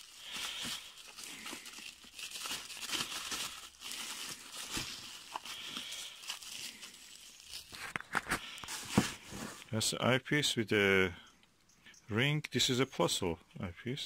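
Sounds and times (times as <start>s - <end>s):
bubble wrap crinkling: 0.0s - 9.7s.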